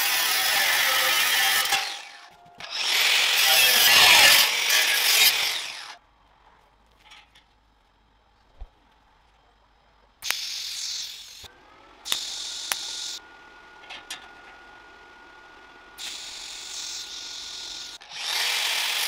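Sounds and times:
angle grinder grinding metal: 0.0s - 6.0s, 10.2s - 11.5s, 12.1s - 13.2s, 16.0s - 19.0s
welding arc click and hiss: 10.2s - 11.5s, 12.1s - 13.2s.

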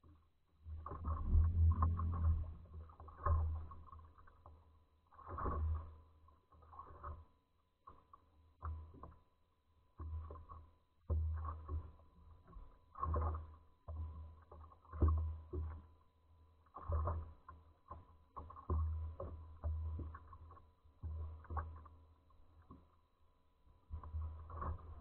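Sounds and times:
small waves slapping boat hull: 0.1s - 25.0s.

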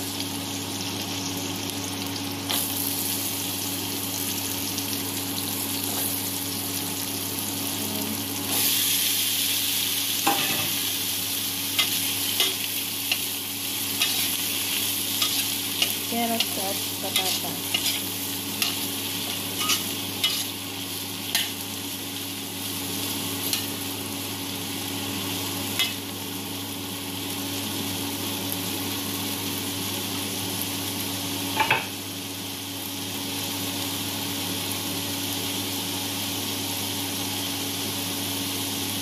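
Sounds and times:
vegetables sizzling in oil: 0.0s - 39.0s
metal spatula scraping a pan: 14.0s - 14.4s, 15.2s - 18.9s, 19.6s - 20.6s.

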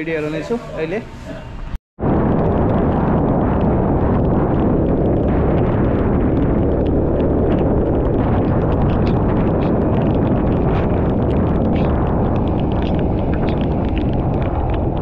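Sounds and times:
wind buffeting camera: 2.0s - 15.0s
sharp ticks: 2.4s - 15.0s.

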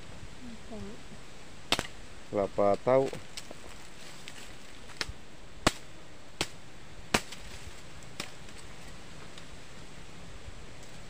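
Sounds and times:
machete chopping wood: 1.7s - 1.9s, 5.0s - 7.6s.

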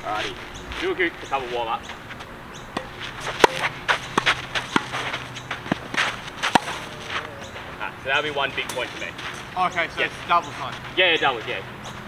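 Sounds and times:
shoes scuffing on clay court: 0.1s - 7.8s, 8.4s - 12.0s
tennis ball hitting racket strings: 2.8s - 7.4s.

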